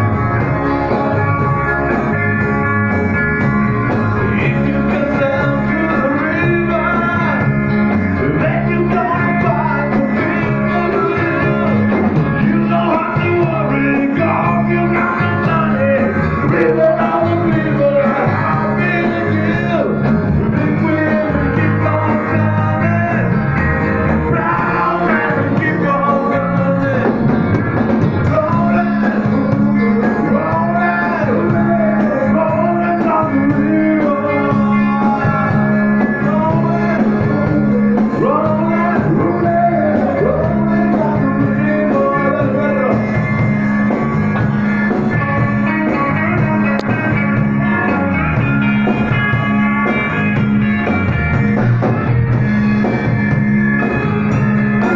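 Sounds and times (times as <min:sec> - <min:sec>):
rock band playing: 0:00.0 - 0:54.9
man singing loudly: 0:04.2 - 0:23.5, 0:24.2 - 0:27.3, 0:28.2 - 0:43.2, 0:45.1 - 0:48.4.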